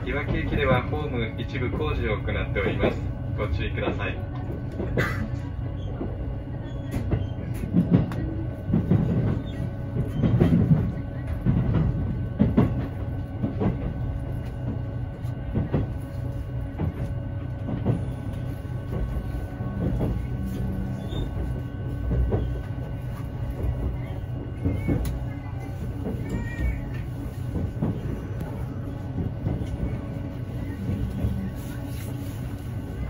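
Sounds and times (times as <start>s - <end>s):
train running rumble: 0.0s - 33.0s.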